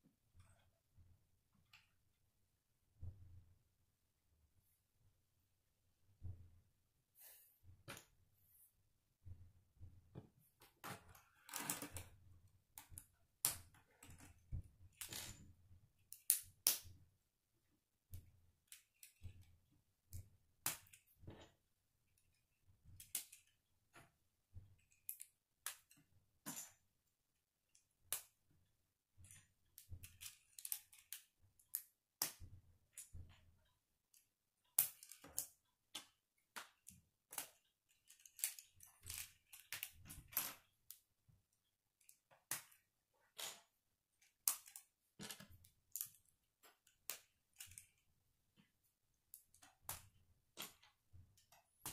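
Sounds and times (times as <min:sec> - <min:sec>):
plastic pieces clicking together: 0:29.7 - 0:32.4, 0:34.1 - 0:41.0, 0:42.0 - 0:48.0.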